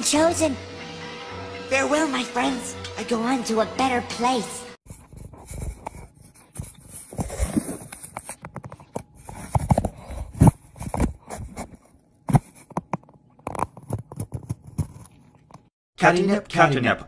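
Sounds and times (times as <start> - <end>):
cardboard rustling and scraping: 4.9 - 15.4.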